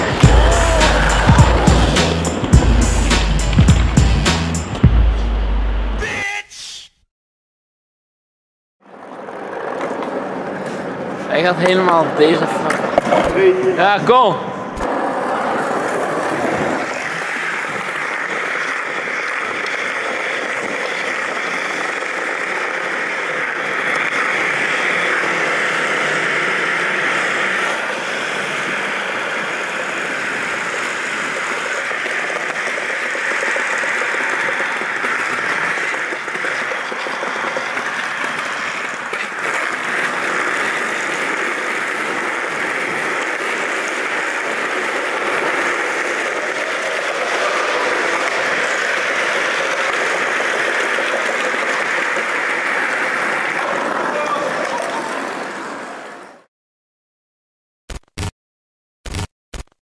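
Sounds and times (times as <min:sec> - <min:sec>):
skateboard wheels rolling on tiles: 0:00.0 - 0:04.9, 0:08.8 - 0:14.1, 0:14.8 - 0:56.5.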